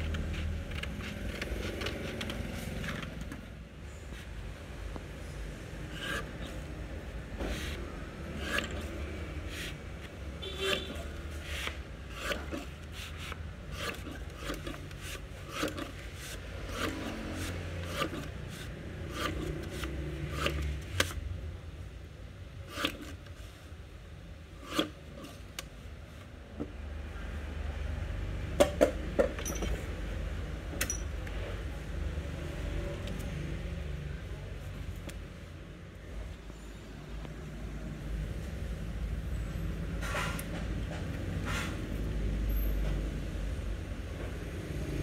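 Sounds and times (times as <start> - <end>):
paper cutter blade chopping paper: 5.9 - 6.5, 7.4 - 8.9, 10.4 - 21.2, 22.7 - 23.2, 24.6 - 25.3.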